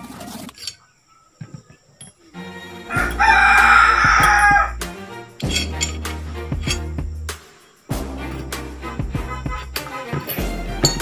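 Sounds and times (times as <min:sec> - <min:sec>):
rooster crowing: 0:02.8 - 0:04.8
metal pistol parts clicking: 0:05.4 - 0:06.9.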